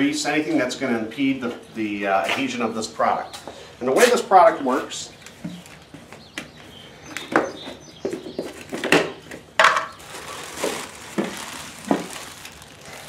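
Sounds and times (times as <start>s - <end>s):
plastic bag rustling: 9.6s - 13.0s.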